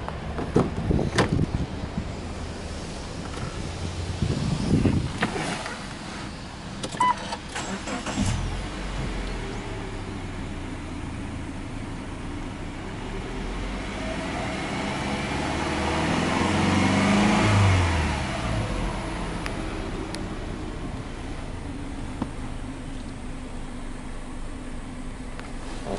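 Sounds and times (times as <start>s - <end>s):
car engine starting and idling: 0.0s - 25.9s
engine revving: 7.2s - 11.2s, 12.2s - 21.9s.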